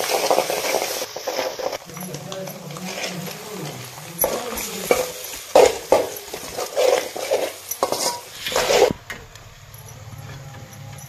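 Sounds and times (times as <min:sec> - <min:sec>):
metal ladle scraping a pan: 0:00.0 - 0:09.2
food frying in oil: 0:00.0 - 0:10.0.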